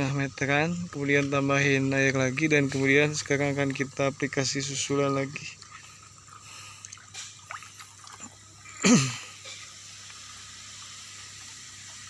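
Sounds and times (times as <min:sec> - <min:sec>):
aerated water bubbling: 0:05.3 - 0:12.0.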